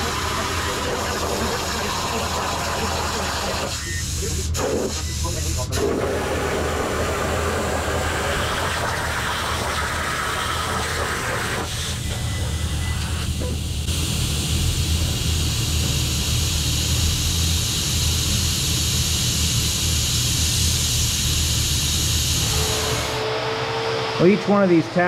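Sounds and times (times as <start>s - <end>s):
plasma torch hissing cutting steel: 0.0s - 12.1s, 13.0s - 23.3s
machine hum: 5.8s - 25.0s.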